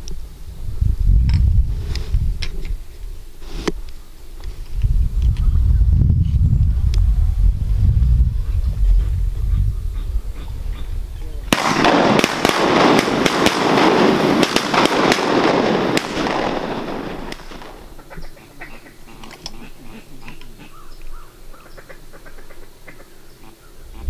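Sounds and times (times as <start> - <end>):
faint duck calls: 8.4 - 11.5, 17.9 - 24.0.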